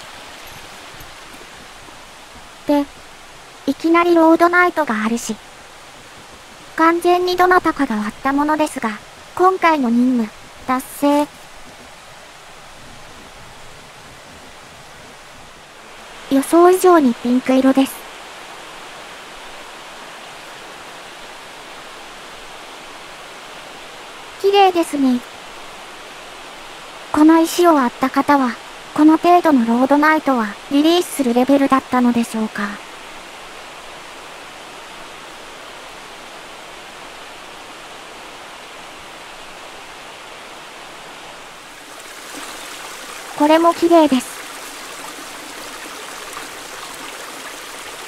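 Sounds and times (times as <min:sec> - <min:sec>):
river flowing over rocks: 0:00.0 - 0:29.0, 0:32.3 - 0:48.0.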